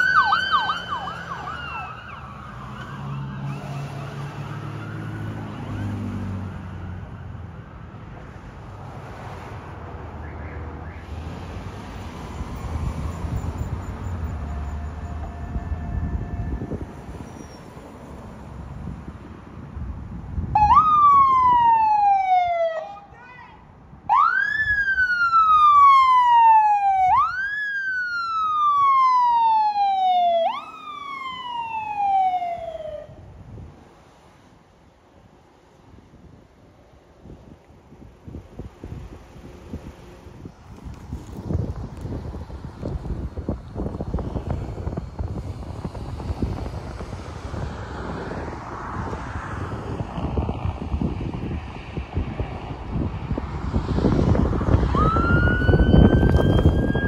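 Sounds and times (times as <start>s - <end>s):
emergency siren wailing: 0.0s - 7.9s, 10.0s - 18.2s, 20.5s - 23.1s, 24.1s - 33.3s, 54.2s - 57.0s
low traffic rumble: 0.0s - 57.0s
passing vehicle: 0.0s - 57.0s
wind buffeting microphone: 11.0s - 21.9s, 35.9s - 57.0s.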